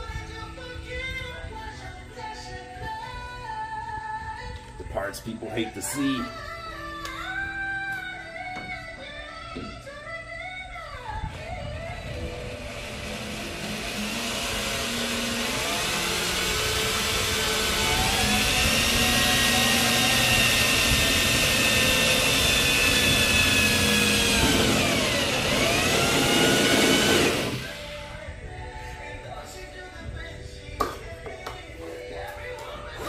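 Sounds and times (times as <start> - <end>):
cordless drill motor whine: 11.1 - 28.3
drill bit grinding through steel: 12.2 - 28.1.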